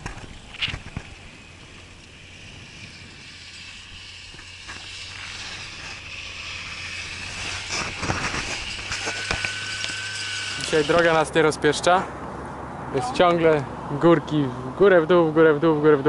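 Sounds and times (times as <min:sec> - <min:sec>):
wind on microphone: 0:00.0 - 0:09.9
bicycle tyre noise: 0:00.0 - 0:11.5.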